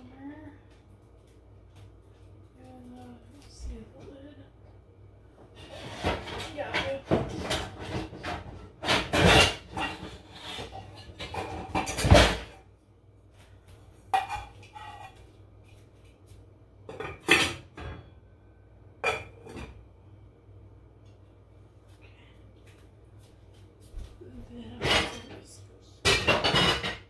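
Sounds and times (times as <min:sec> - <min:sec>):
pots and pans clattering: 0:05.6 - 0:12.6, 0:14.1 - 0:15.2, 0:16.9 - 0:18.2, 0:19.0 - 0:19.8, 0:24.7 - 0:27.0.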